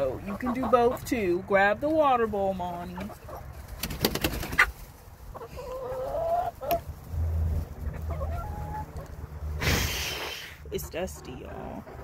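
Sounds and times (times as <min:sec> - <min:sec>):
hen wing flaps: 0:03.7 - 0:04.7.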